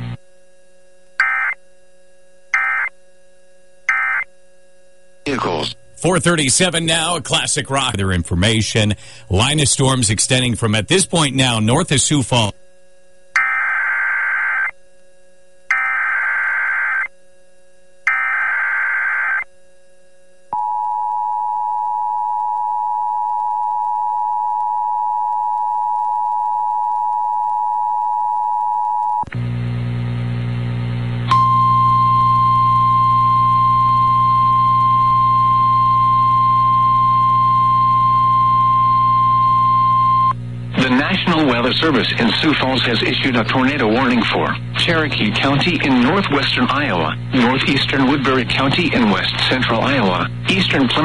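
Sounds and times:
electrical hum: 0:00.0 - 0:51.0
steady alarm tone: 0:01.2 - 0:01.6, 0:02.5 - 0:03.0, 0:03.7 - 0:04.3, 0:13.4 - 0:14.8, 0:15.7 - 0:17.1, 0:18.0 - 0:19.5.

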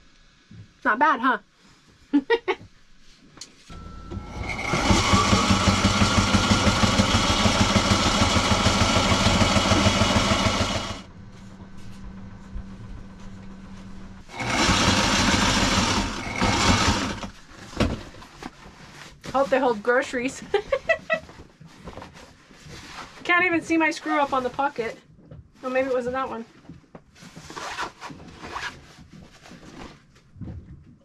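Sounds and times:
low motor hum: 0:03.7 - 0:18.1
sewing machine stitching: 0:04.1 - 0:11.1, 0:14.3 - 0:17.5.

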